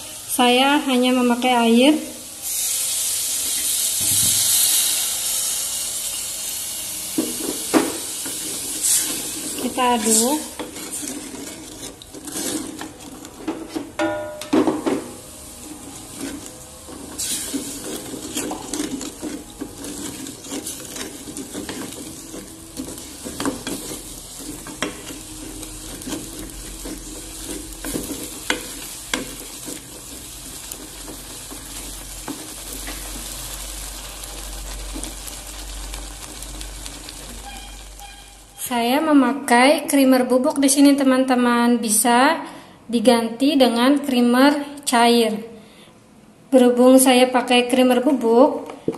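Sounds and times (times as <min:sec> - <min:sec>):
simmering pot sizzling: 0:00.0 - 0:38.9
spatula scraping metal pot: 0:08.3 - 0:14.0, 0:15.6 - 0:33.0.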